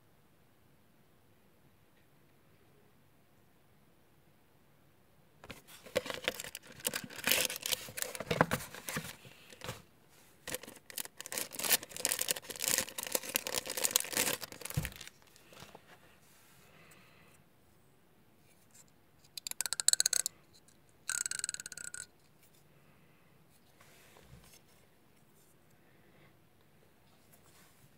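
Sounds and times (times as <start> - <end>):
plastic bag crinkling: 5.5 - 9.8, 10.4 - 15.6.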